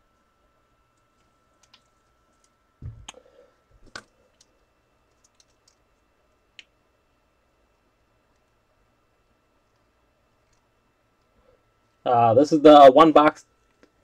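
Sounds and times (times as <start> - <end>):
low thump: 2.8 - 3.1.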